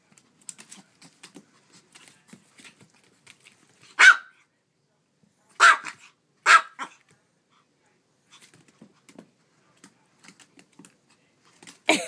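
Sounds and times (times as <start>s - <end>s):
dog barking: 4.0s - 4.4s, 5.6s - 7.0s.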